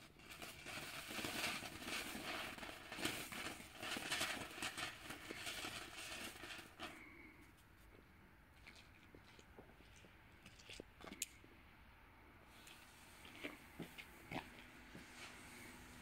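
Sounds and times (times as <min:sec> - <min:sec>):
fountain firework hissing: 0:00.0 - 0:07.0
firework crackles: 0:00.0 - 0:07.1.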